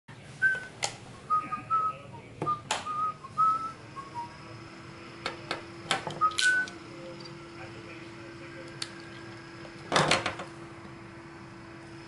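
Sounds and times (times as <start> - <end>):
faint steady hum: 0.1 - 12.0
person whistling a tune: 0.4 - 0.7, 1.3 - 4.4, 6.2 - 6.8.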